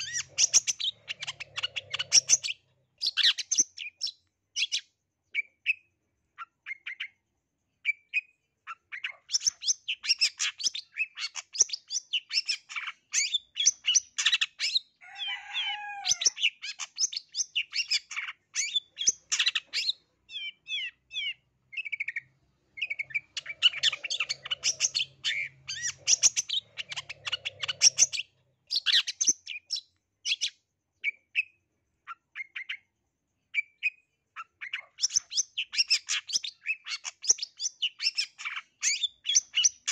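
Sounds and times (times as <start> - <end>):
bird singing fast chatter: 0.0 - 5.8, 15.7 - 31.5.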